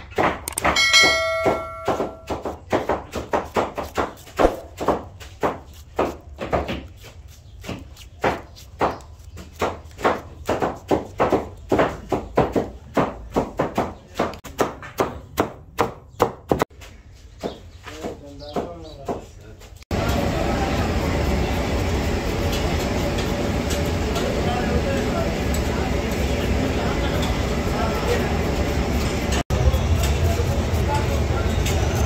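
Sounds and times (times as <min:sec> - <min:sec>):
knife chopping on wooden board: 0:01.6 - 0:16.7.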